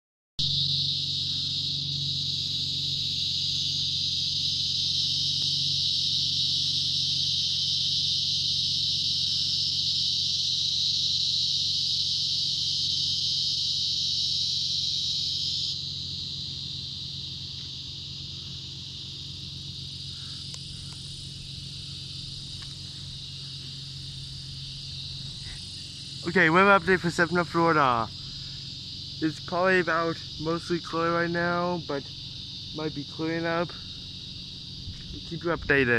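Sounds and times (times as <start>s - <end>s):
insects droning in trees: 0.4s - 35.9s.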